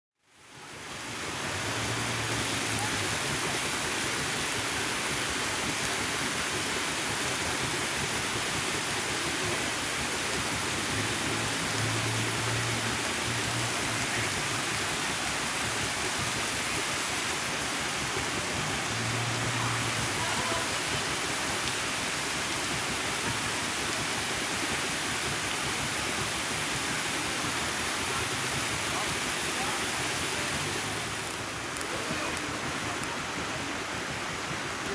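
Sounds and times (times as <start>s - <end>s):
fountain water splashing into pool: 0.2s - 34.9s.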